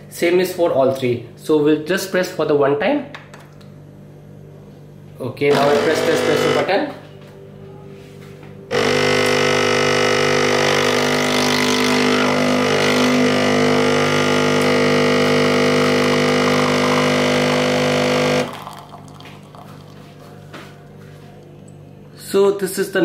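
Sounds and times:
espresso machine pump humming: 0:05.4 - 0:07.0, 0:08.7 - 0:21.7.

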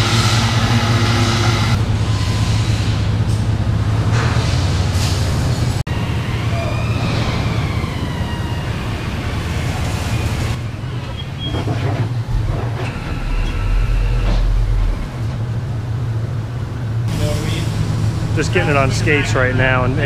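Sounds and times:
forklift engine running: 0:00.0 - 0:20.0
whine rising and falling: 0:12.3 - 0:15.9.

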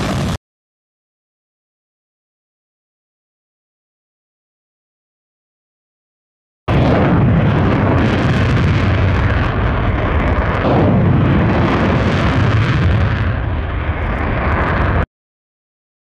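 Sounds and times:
jet engine roar: 0:00.0 - 0:00.4, 0:06.7 - 0:15.1.

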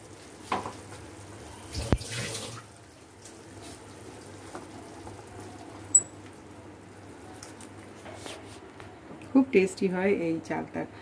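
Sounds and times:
water poured into a pan: 0:01.7 - 0:02.7.

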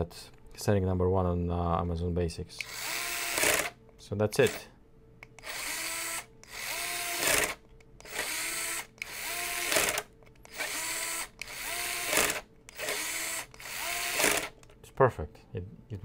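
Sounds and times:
electric screwdriver whining: 0:02.6 - 0:03.8, 0:05.4 - 0:14.6.

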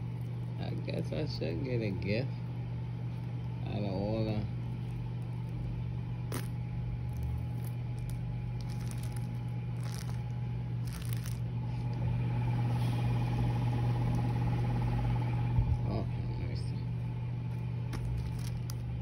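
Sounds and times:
steady low hum: 0:00.0 - 0:19.0
packaging rustling: 0:06.3 - 0:11.5, 0:17.9 - 0:19.0.

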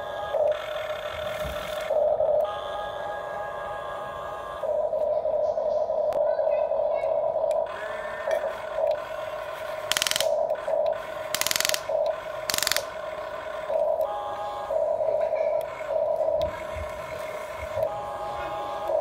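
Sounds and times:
toy gear motors whining: 0:00.0 - 0:04.9, 0:07.5 - 0:19.0
rattling bursts of gear noise: 0:12.5 - 0:13.0.

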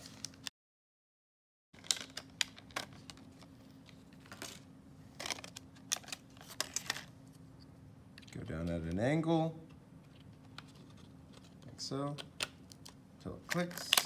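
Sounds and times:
plastic packaging clicking: 0:01.8 - 0:03.4, 0:12.1 - 0:14.0
faint steady hum: 0:01.8 - 0:14.0.

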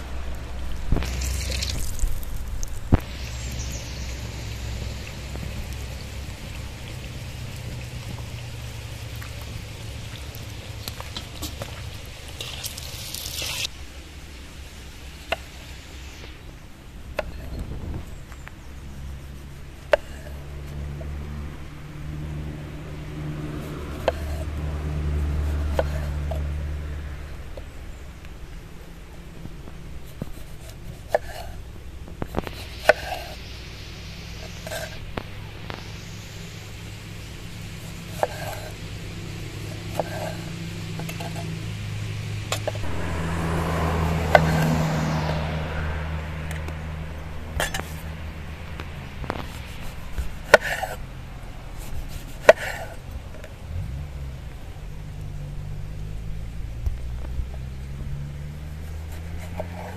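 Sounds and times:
low steady hum: 0:00.0 - 0:59.9
knife slicing tomatoes: 0:23.9 - 0:24.5, 0:25.2 - 0:26.5, 0:30.1 - 0:31.6, 0:32.3 - 0:33.4, 0:38.1 - 0:38.8, 0:39.8 - 0:41.5.

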